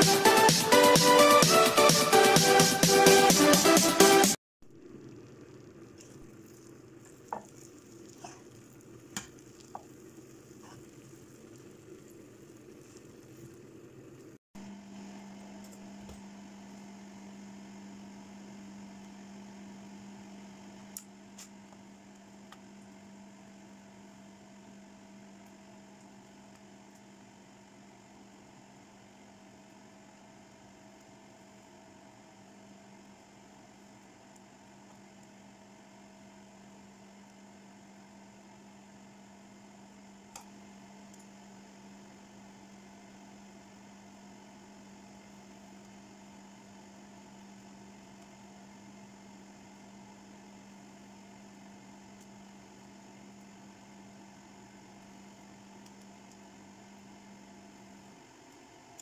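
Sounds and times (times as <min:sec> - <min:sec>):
electrical hum: 0:04.6 - 0:59.0
rice sizzling in a frying pan: 0:04.8 - 0:14.4
wooden spatula scraping: 0:06.0 - 0:11.6.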